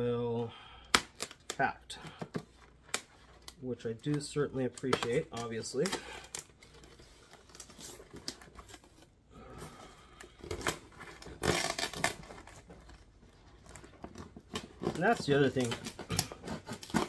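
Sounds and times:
packaging scraping and rustling: 2.4 - 17.0
knife cutting tape and paper: 15.6 - 17.0.

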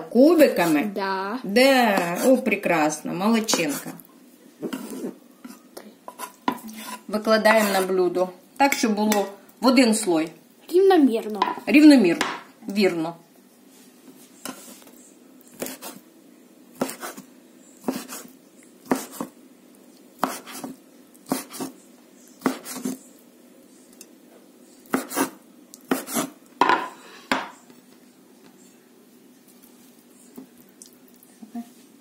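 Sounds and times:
knife chopping on wooden board: 15.6 - 16.0, 16.8 - 17.2, 17.8 - 19.3, 20.2 - 21.7, 22.4 - 23.0, 24.9 - 27.5.

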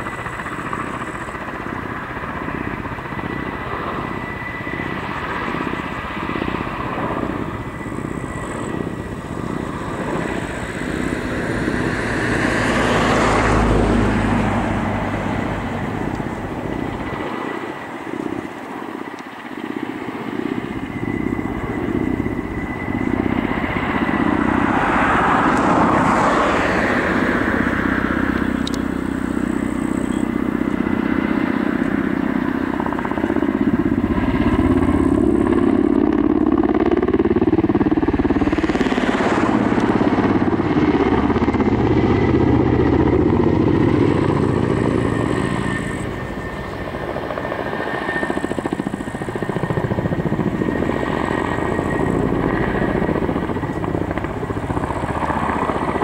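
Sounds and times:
helicopter drone: 0.0 - 56.0
high whine: 20.2 - 56.0.

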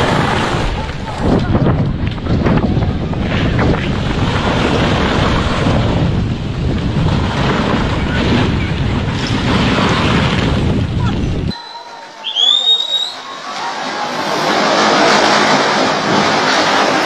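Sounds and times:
rockfall rumble: 0.0 - 11.5
wind buffeting microphone: 0.0 - 11.6.

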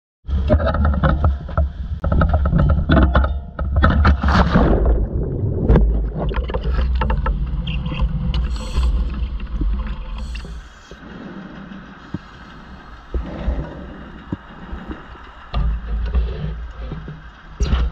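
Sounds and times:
bubbling underwater: 3.8 - 11.0
muffled underwater rush: 3.8 - 17.9
water splashing: 3.9 - 17.9.

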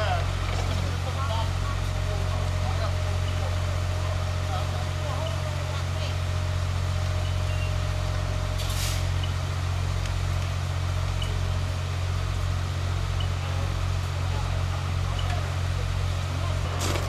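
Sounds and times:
fire engine running: 0.0 - 17.0
short hiss: 8.6 - 9.2.

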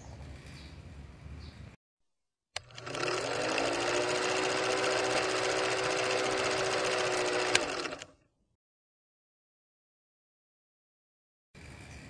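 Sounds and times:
film projector clattering: 2.6 - 8.2.

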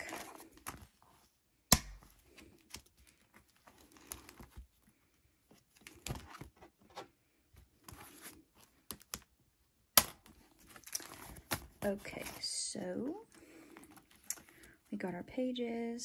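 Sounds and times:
plastic sleeves crinkling: 0.0 - 1.4, 2.0 - 7.0, 10.2 - 15.1.

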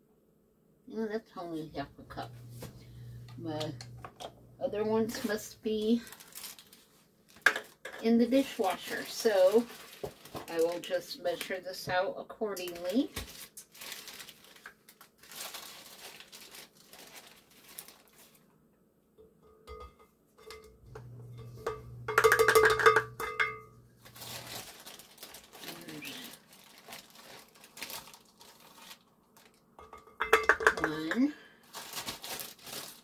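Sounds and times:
biscuit mix rustling in bag: 5.0 - 7.8, 8.4 - 11.4, 12.6 - 18.5, 23.8 - 29.8, 31.6 - 33.0
plastic cup knocking: 20.9 - 23.6, 29.8 - 31.2.

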